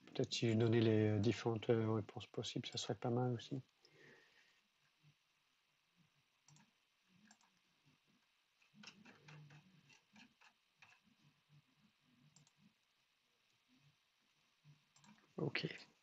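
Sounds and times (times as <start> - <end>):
computer keyboard and mouse clicks: 6.4 - 7.6, 8.6 - 11.0, 14.9 - 15.2.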